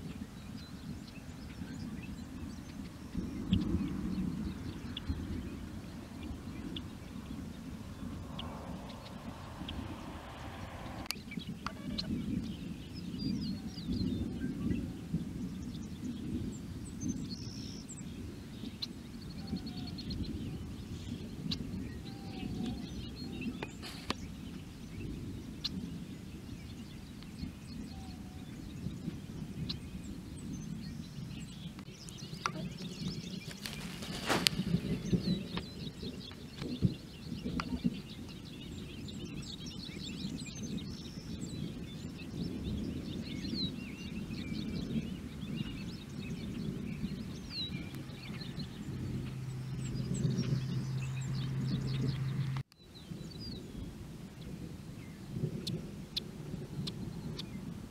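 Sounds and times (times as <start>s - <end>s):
small birds chirping: 0.0s - 57.9s
distant rolling thunder: 1.9s - 17.2s, 32.8s - 52.3s.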